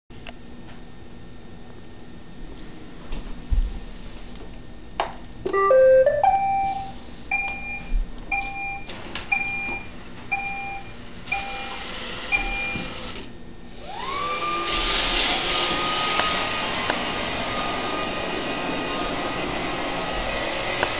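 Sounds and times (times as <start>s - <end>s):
rising electronic tones: 5.5s - 6.9s
two-note beep: 5.5s - 7.6s
vacuum motors whirring: 11.0s - 20.9s.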